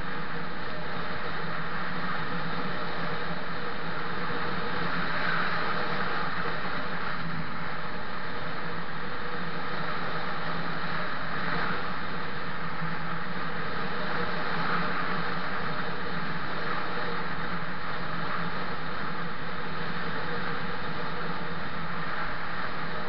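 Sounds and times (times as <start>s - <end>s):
low steady hum: 0.0s - 23.0s
wind rushing over microphone: 0.0s - 23.0s.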